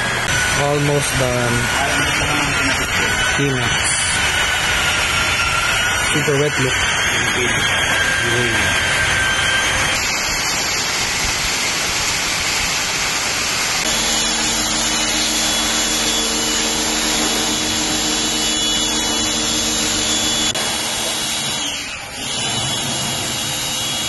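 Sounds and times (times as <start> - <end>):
machine hum: 0.0 - 24.0
pressure washer spraying water: 10.0 - 24.0.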